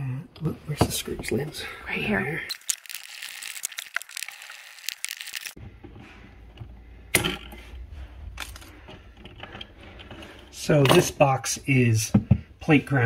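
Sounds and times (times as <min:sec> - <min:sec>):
stiff wires being handled: 0:02.5 - 0:06.8.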